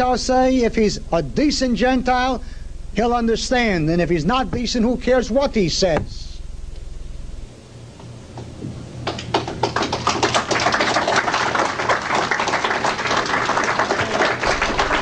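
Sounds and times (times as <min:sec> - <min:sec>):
audience applauding: 0:09.0 - 0:15.0.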